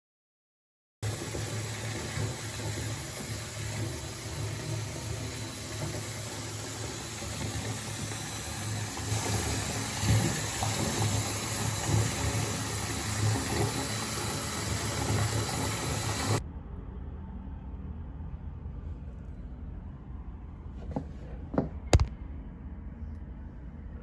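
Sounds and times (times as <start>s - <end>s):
water pouring into bathtub: 1.0s - 16.4s.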